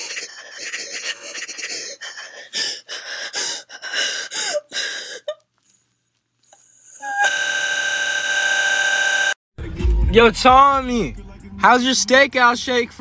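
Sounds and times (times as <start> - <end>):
person gasping: 0.0 - 5.3.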